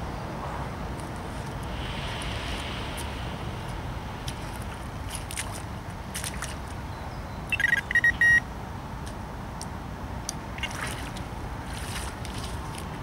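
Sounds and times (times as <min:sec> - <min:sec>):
wind rumble: 0:00.0 - 0:08.0
distant machinery: 0:00.0 - 0:08.4
bite alarm electronic beeps: 0:07.5 - 0:08.4.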